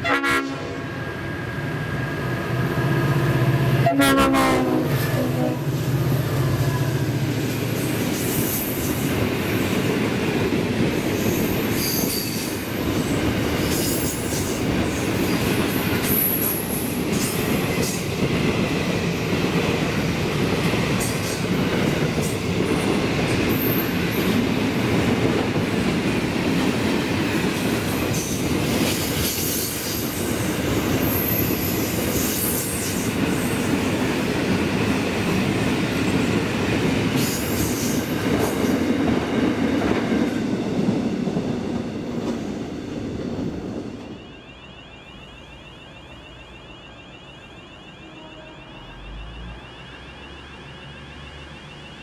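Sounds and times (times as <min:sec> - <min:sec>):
electronic warning tone: 0:43.9 - 0:52.0.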